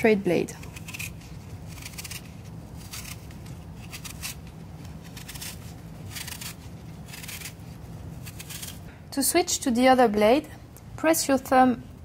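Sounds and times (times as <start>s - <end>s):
peeler scraping apple skin: 0.4s - 8.9s.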